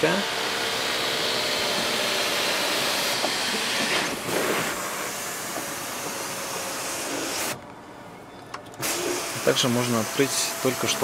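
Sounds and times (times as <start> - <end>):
sunroof motor rushing noise: 0.2 - 7.7.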